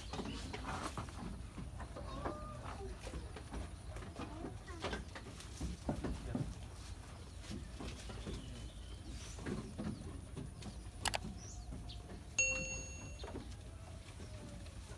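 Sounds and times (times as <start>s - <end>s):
bright bell ding: 12.4s - 13.4s.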